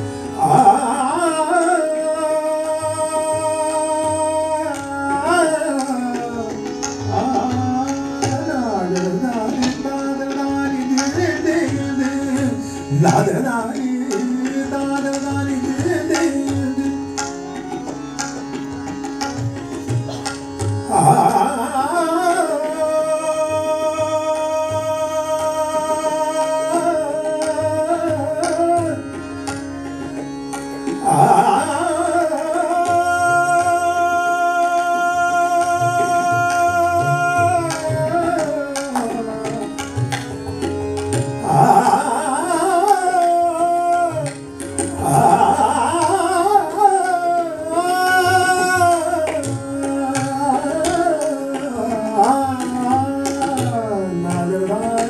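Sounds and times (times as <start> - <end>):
harmonium drone: 0.0 - 55.0
tabla strokes: 0.0 - 55.0
man singing long notes: 20.9 - 29.0, 31.0 - 39.8, 41.4 - 55.0.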